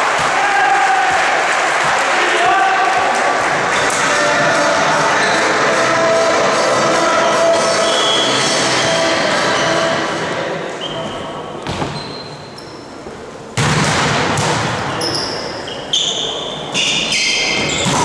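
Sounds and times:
shoes squeaking on court floor: 10.8 - 13.2, 14.9 - 18.0
volleyball struck and bouncing: 13.6 - 15.0.

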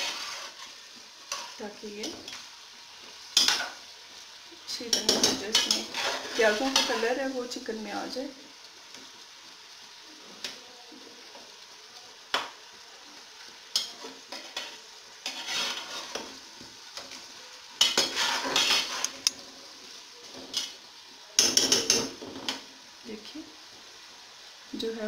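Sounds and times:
spatula scraping metal pot: 0.0 - 1.6, 4.9 - 7.2, 13.8 - 16.3, 17.8 - 19.4
frying sizzle: 0.0 - 25.0.

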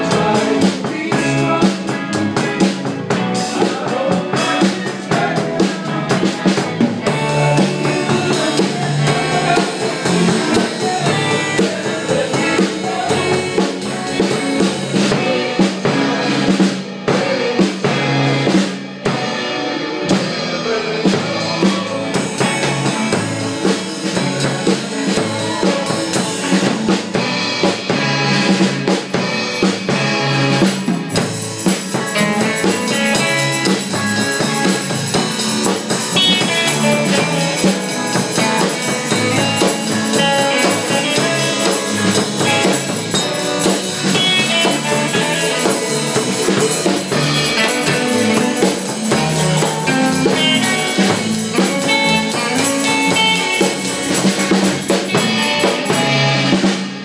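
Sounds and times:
drum kit beat: 0.0 - 57.0
electric guitars: 0.0 - 57.0
live rock band playing: 0.0 - 57.0.

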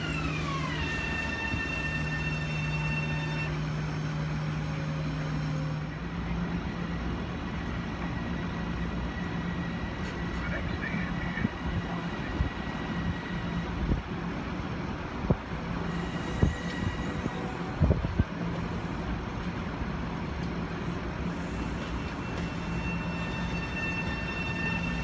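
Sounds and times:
electric train rumbling: 0.0 - 25.0.

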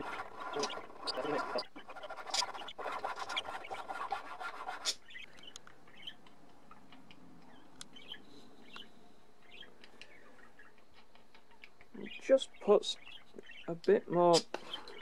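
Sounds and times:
hand file rasping on wood: 0.0 - 5.0
faint scattered clicks: 8.7 - 12.0.

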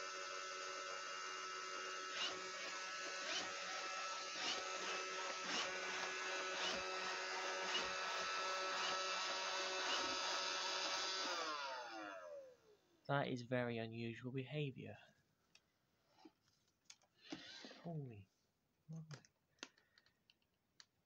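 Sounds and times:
robot vacuum motors whirring: 0.0 - 12.6, 17.2 - 17.9.

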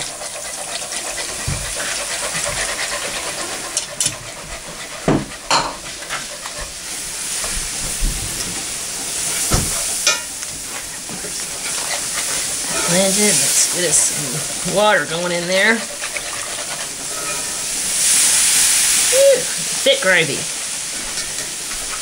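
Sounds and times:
milk sizzling in hot pan: 0.0 - 22.0
utensil knocking against pan: 5.0 - 5.8.

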